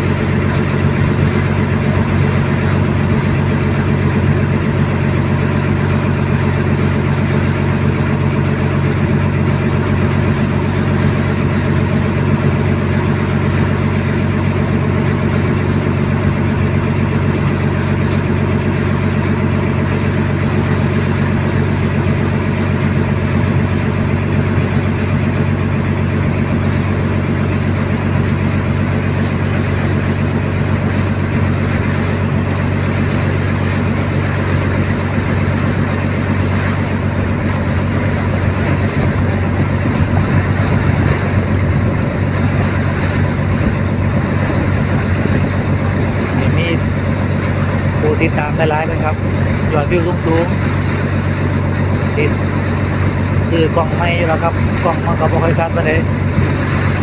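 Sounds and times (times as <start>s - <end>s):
boat engine humming: 0.0s - 57.0s.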